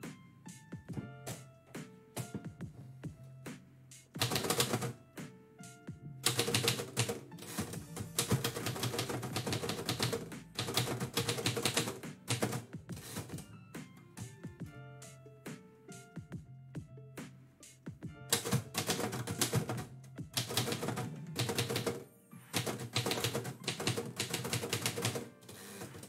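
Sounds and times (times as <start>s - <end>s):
typewriter keystrikes: 4.2s - 5.0s, 6.2s - 13.4s, 18.3s - 22.0s, 22.6s - 26.0s.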